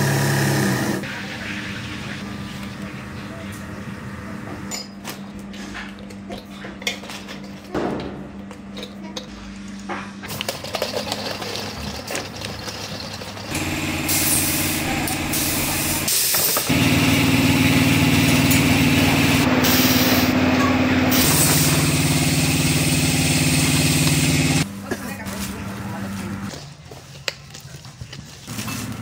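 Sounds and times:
machine drone: 0:13.4 - 0:24.8.

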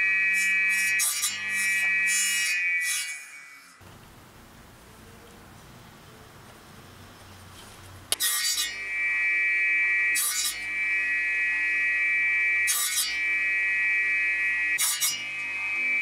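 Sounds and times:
saw cutting wood: 0:00.0 - 0:03.8, 0:08.1 - 0:16.0
table saw whining: 0:00.0 - 0:03.8, 0:08.1 - 0:16.0.

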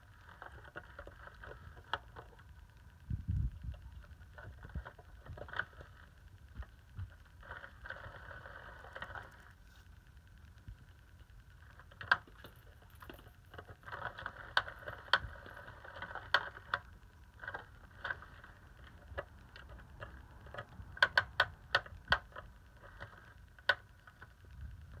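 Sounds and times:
paws tapping plastic toy: 0:11.7 - 0:25.0.

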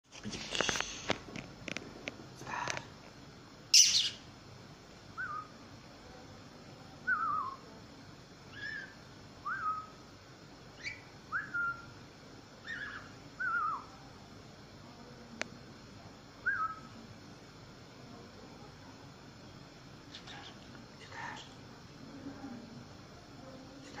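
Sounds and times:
budgerigar chirping and whistling: 0:03.7 - 0:04.2, 0:05.2 - 0:05.5, 0:07.1 - 0:07.6, 0:08.5 - 0:10.0, 0:10.8 - 0:11.9, 0:12.6 - 0:13.9, 0:16.5 - 0:16.9.

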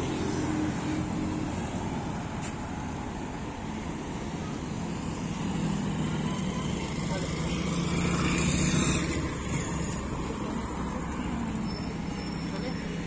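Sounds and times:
passing vehicle engine hum: 0:00.0 - 0:13.0
road traffic noise: 0:00.0 - 0:13.0.

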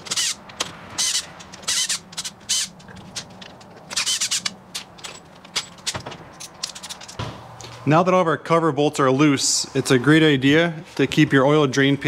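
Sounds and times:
cordless drill spinning bolts: 0:00.0 - 0:05.1.

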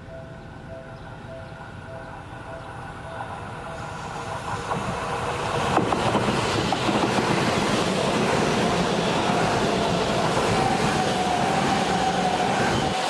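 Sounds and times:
electric train passing: 0:00.0 - 0:13.0
wheels clicking over rail joints: 0:04.2 - 0:11.4.

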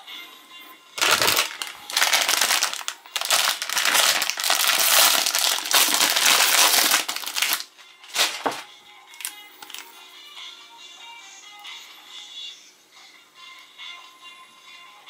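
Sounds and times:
snack wrapper crinkling: 0:01.0 - 0:08.6, 0:09.2 - 0:09.9.

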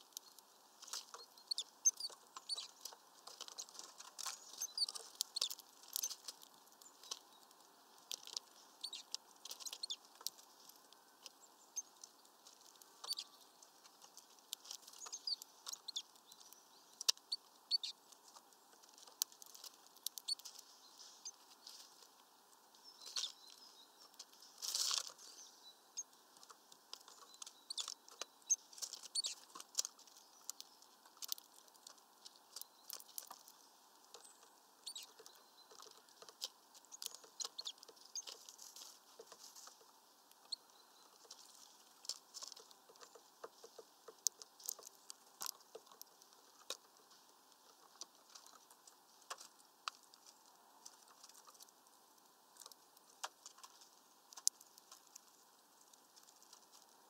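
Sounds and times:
beaks tapping on mesh feeder: 0:26.0 - 0:38.5, 0:42.1 - 0:46.8.

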